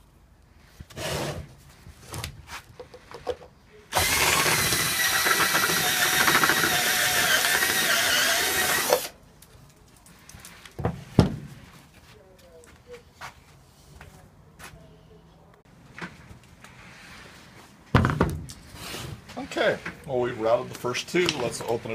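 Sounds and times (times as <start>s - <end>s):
cordless drill drilling metal: 3.9s - 9.1s.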